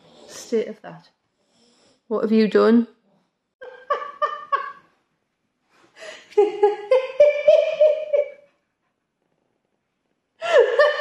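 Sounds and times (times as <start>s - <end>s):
person laughing: 3.6s - 4.9s, 6.1s - 8.5s, 10.4s - 11.0s.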